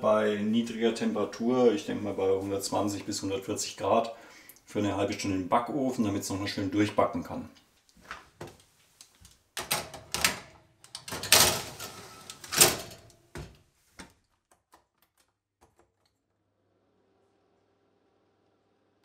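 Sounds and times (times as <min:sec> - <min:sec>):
oven door opening and shutting: 0:09.6 - 0:13.1
baking tray clattering: 0:09.6 - 0:13.6.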